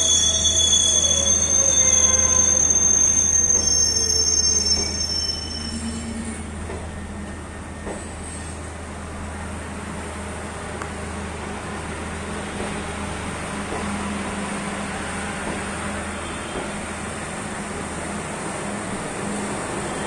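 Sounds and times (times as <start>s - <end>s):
train wheels squealing: 0.0s - 8.8s, 14.7s - 17.1s, 19.1s - 20.0s.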